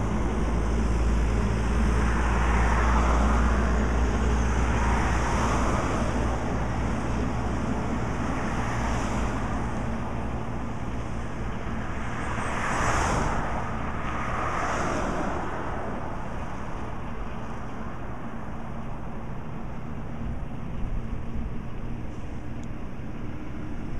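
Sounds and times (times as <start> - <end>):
tractor diesel engine running: 0.0 - 12.0
passing road traffic: 0.0 - 23.9.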